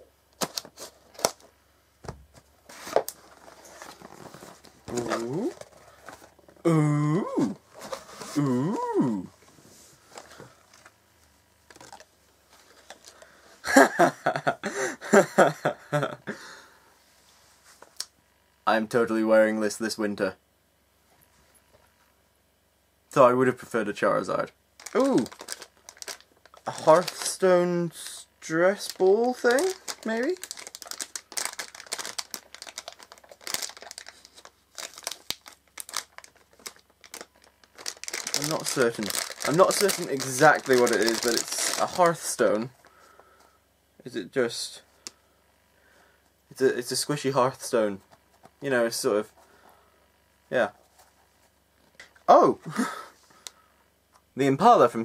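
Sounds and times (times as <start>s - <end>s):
plastic wrapper crinkling: 11.6s - 13.3s, 24.8s - 27.4s, 28.7s - 42.5s
man laughing: 13.6s - 16.5s.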